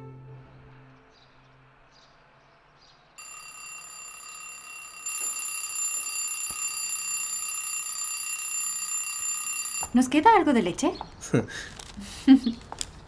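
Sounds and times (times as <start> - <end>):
alarm clock ringing: 3.2 - 10.8.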